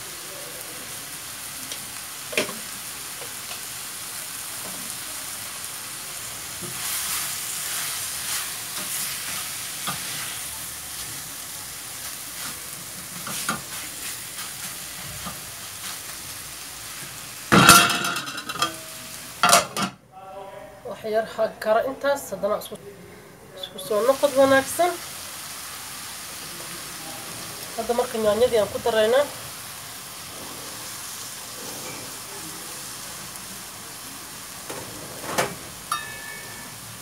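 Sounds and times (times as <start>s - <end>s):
chicken and onions sizzling: 0.0s - 19.7s, 23.4s - 37.0s
spatula scraping and tapping pan: 6.6s - 10.3s, 12.4s - 16.2s
metallic clatter on pan: 17.5s - 20.0s, 34.7s - 36.8s.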